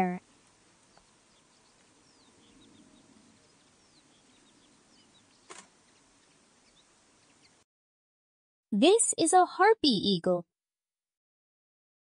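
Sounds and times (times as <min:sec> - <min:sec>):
faint bird chirps: 0:00.0 - 0:07.6.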